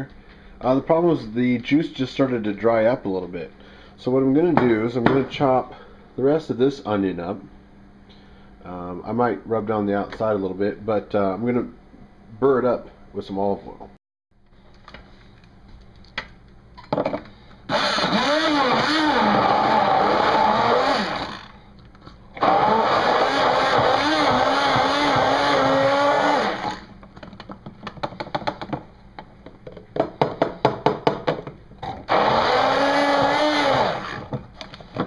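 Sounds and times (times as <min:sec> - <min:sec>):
immersion blender running: 0:17.7 - 0:21.6, 0:22.4 - 0:27.0, 0:32.1 - 0:34.4.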